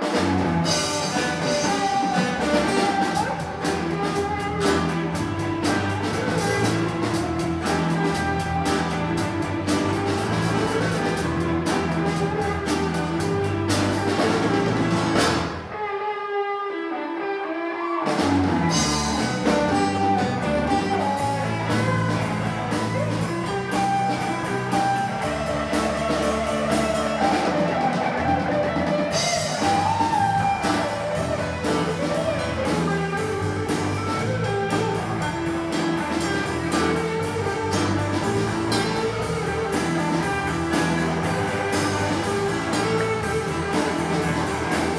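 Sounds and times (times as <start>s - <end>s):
electric guitar: 0.0s - 44.9s
rock band playing: 0.0s - 44.9s.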